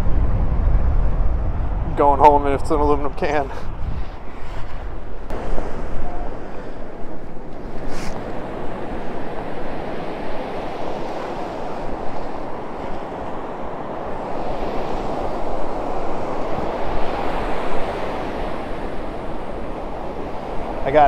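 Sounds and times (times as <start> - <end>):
wind on microphone: 0.0 - 21.0
ocean surf washing over sand: 2.0 - 21.0.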